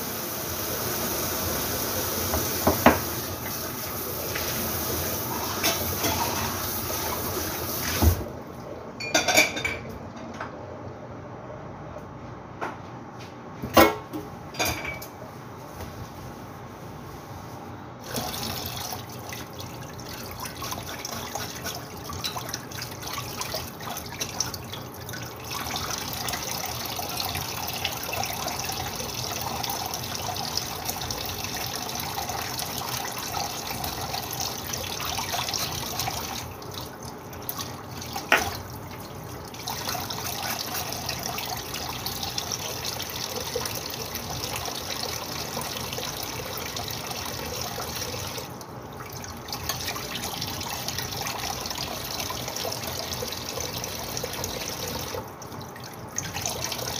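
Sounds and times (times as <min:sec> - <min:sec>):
tap running into steel sink: 0:02.3 - 0:03.2.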